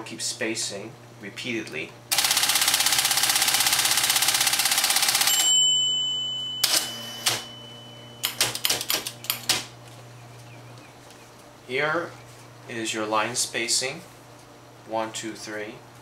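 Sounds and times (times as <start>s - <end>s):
motor hum: 0.7s - 14.9s
typewriter mechanical clicks: 2.1s - 5.5s, 6.6s - 7.5s, 8.2s - 9.7s
high whine: 5.2s - 14.0s
typewriter key clicks: 8.2s - 9.6s.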